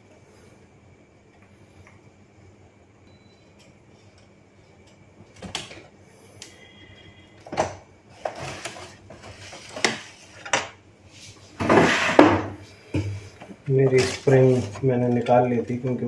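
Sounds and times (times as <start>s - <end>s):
plastic rubbing noise: 13.9s - 15.1s.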